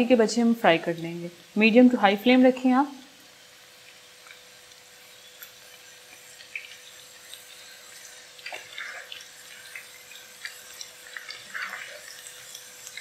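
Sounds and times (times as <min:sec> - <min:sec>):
chicken deep-frying in hot oil: 0:00.0 - 0:13.0
oil popping and crackling: 0:03.0 - 0:13.0.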